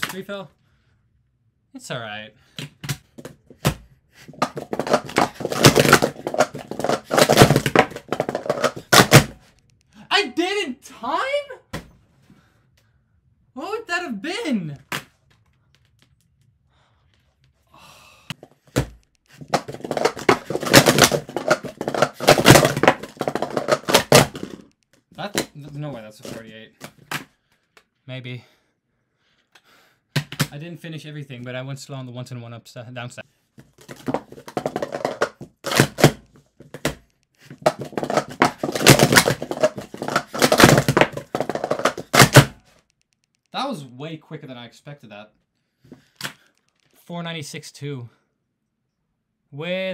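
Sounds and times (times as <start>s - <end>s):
plastic cups clattering: 4.3s - 9.4s, 18.4s - 24.7s, 33.7s - 42.6s.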